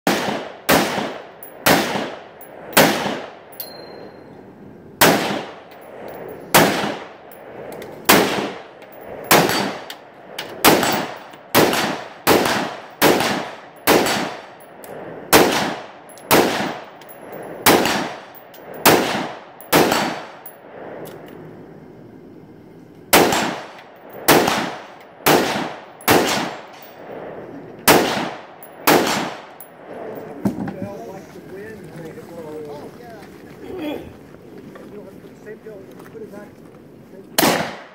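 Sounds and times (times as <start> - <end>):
rifle shots with ringing echo: 0.1 - 4.3, 5.0 - 20.9, 23.1 - 30.5, 37.4 - 37.9.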